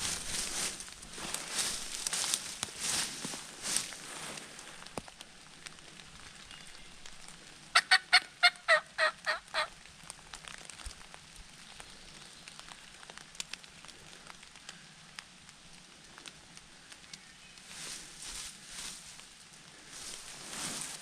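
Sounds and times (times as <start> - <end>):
turkey yelps: 7.7 - 9.7.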